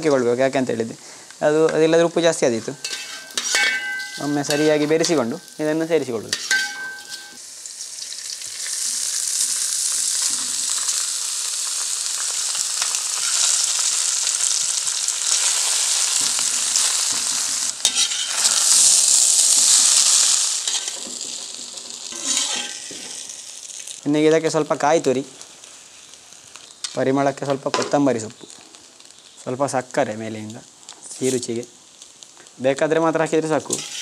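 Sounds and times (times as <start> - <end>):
food sizzling in hot oil: 0.0 - 34.0
ladle scraping a pan: 2.8 - 5.6, 6.3 - 7.3, 17.3 - 18.8, 20.6 - 21.3, 22.1 - 23.2, 33.7 - 34.0.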